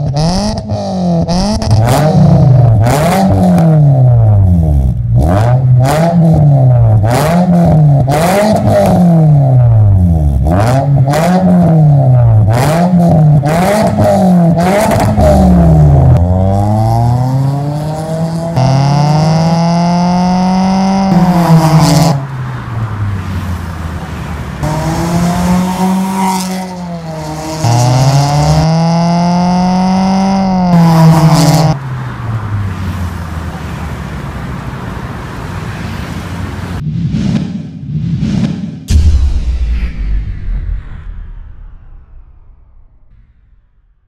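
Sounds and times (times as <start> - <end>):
car engine revving hard: 0.0 - 31.8
passing traffic: 0.0 - 39.0.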